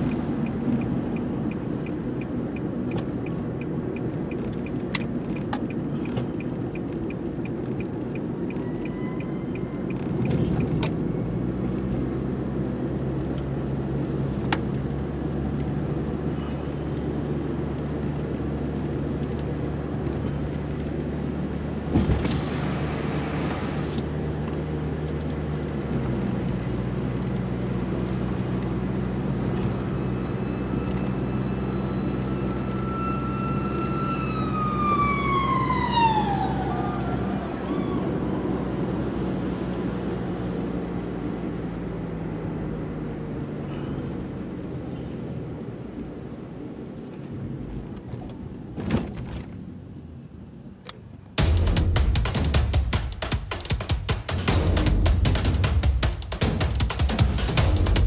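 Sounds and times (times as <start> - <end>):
engine and tyres humming: 0.0 - 58.0
sharp knock: 51.4 - 58.0.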